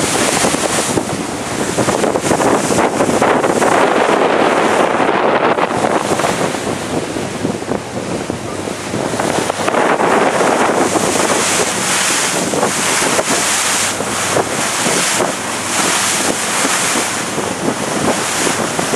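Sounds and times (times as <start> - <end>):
water rushing along hull: 0.0 - 18.9
wind buffeting microphone: 0.0 - 18.9.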